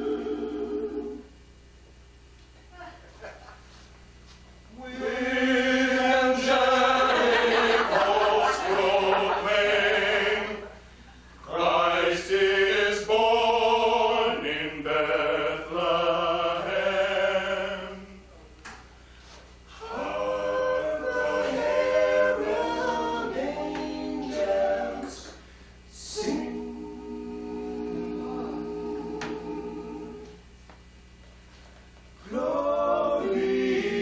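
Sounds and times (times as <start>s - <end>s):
men singing in harmony: 4.8s - 10.8s, 11.4s - 18.2s, 19.8s - 30.4s, 32.2s - 34.0s.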